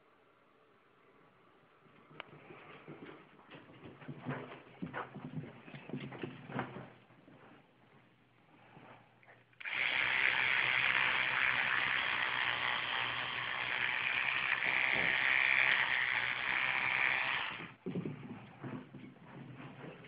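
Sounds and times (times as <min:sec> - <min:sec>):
electric toothbrush buzzing: 0:09.6 - 0:17.8.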